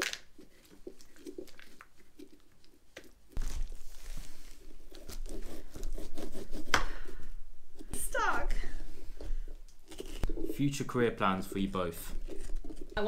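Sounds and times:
metal spoon scraping pulp: 0:09.3 - 0:13.0.

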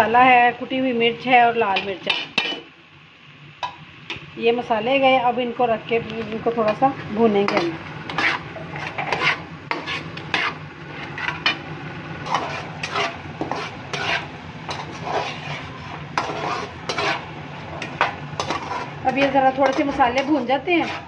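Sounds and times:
frying sizzle: 0:00.0 - 0:21.0
metal spatula scraping a pan: 0:01.8 - 0:02.7, 0:07.4 - 0:21.0.

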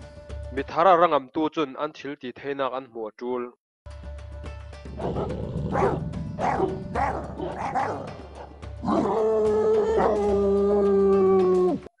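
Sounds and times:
background music: 0:00.0 - 0:01.4, 0:03.9 - 0:12.0
dogs barking: 0:05.0 - 0:09.3, 0:09.9 - 0:10.3
dog howling: 0:08.8 - 0:11.9.

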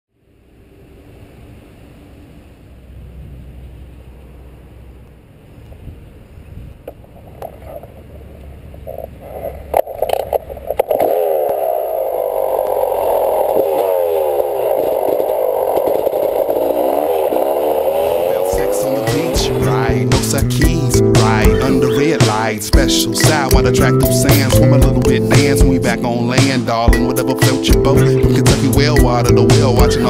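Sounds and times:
muffled rumble: 0:00.4 - 0:27.1
motorcycle engine revving: 0:10.5 - 0:22.5.

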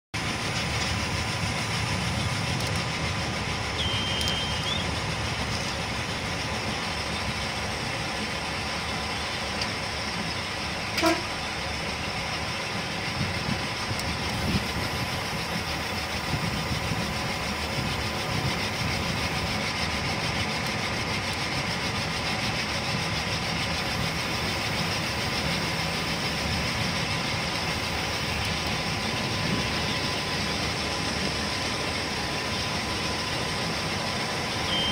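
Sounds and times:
train wheels rumbling on rails: 0:00.1 - 0:34.9
faint steady whine: 0:27.0 - 0:34.9.

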